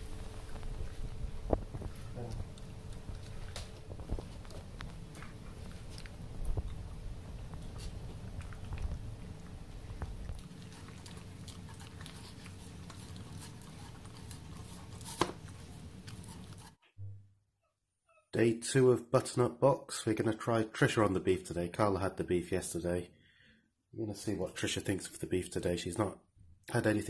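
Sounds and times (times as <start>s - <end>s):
dog chewing and lapping: 0.4s - 16.7s.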